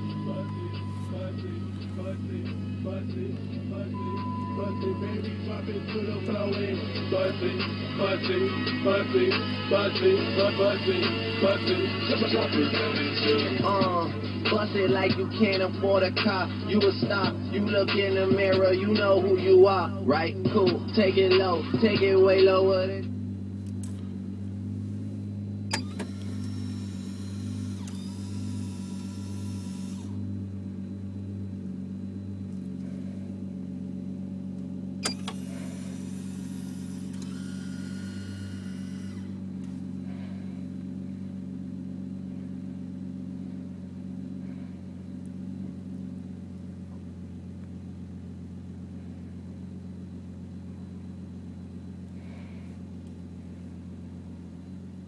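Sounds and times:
car engine idling: 0.0 - 55.0
click: 23.6 - 24.1, 25.7 - 26.6, 27.8 - 28.0, 34.5 - 35.4, 37.1 - 37.4, 45.2 - 46.7, 53.0 - 53.2
small electric motor whirring: 25.7 - 30.2, 35.0 - 39.4.

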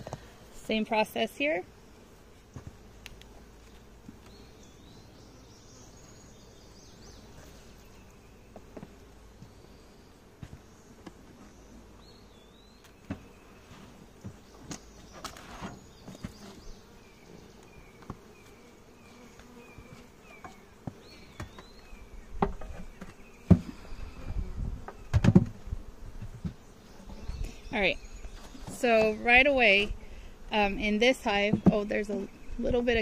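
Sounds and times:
honey bees buzzing: 0.0 - 33.0
bird chirping: 4.2 - 8.6, 14.4 - 25.2
knocks and thumps: 22.4 - 23.8, 24.8 - 25.6.

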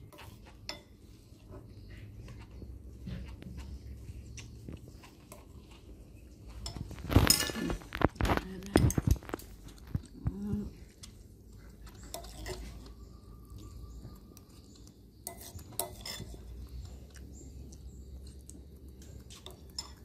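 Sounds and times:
spoons clinking on bowls: 0.0 - 1.1, 4.9 - 9.6, 11.8 - 17.2, 19.0 - 20.0.

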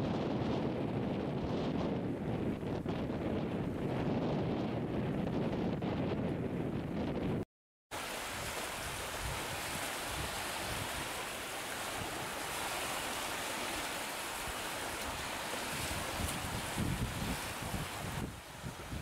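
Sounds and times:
wind rumbling on microphone: 0.0 - 19.0
choppy waves hissing: 8.0 - 19.0.

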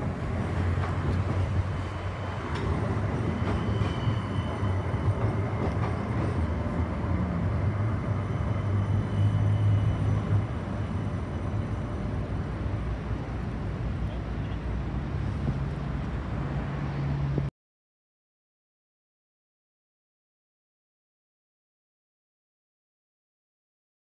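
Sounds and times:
tram running hum: 0.0 - 17.5
faint high steady tone: 8.1 - 12.2.

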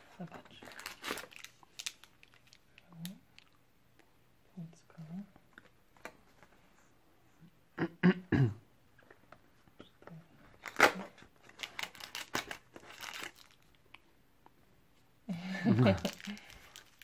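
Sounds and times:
foil packets crinkling: 0.3 - 3.5, 10.6 - 13.8, 15.8 - 17.0.

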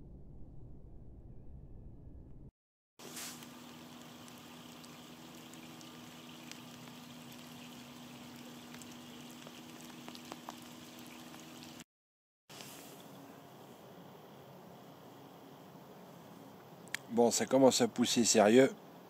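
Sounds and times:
rain falling on river: 3.0 - 11.8
single raindrops ticking: 3.3 - 11.8.

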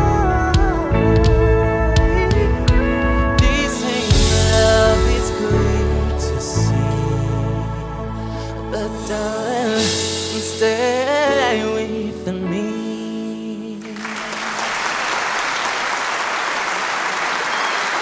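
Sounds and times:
held instrumental chords: 0.0 - 13.6
person singing a ballad: 0.0 - 14.9
audience applause: 14.0 - 18.0.

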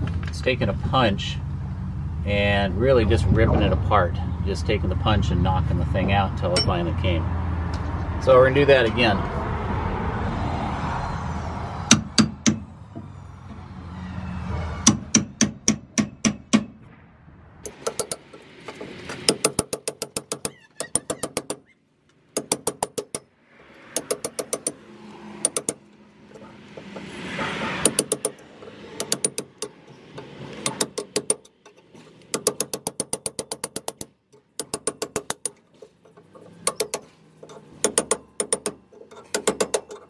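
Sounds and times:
hammer striking steel punch: 11.9 - 12.7, 14.8 - 16.8.

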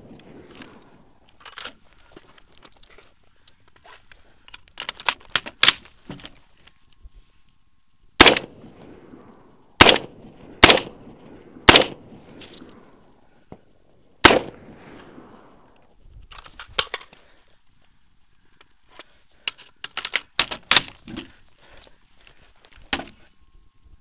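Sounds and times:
gun handling clicks and rattles: 0.2 - 7.0, 16.2 - 17.4, 18.6 - 23.1
rifle shots with echo: 8.2 - 8.8, 9.8 - 12.2, 14.2 - 15.4.

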